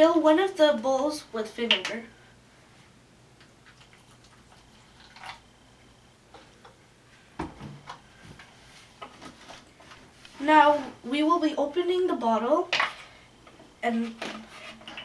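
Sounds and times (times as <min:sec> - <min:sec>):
liquid trickling into plastic bowl: 0:03.6 - 0:05.4.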